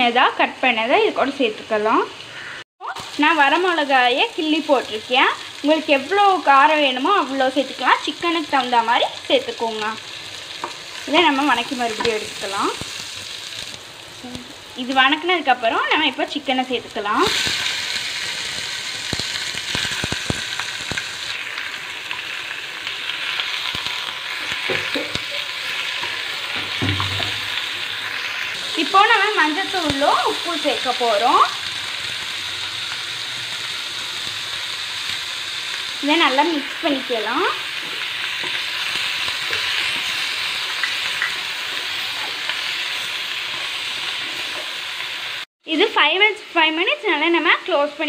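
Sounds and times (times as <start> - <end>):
chicken sizzling in hot oil: 0.0 - 48.0
wooden spatula knocking on pan: 26.6 - 27.4.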